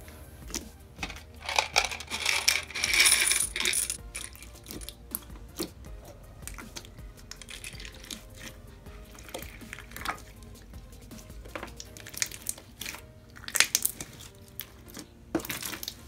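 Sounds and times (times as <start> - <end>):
crunchy slime crackling and popping: 11.6 - 16.0.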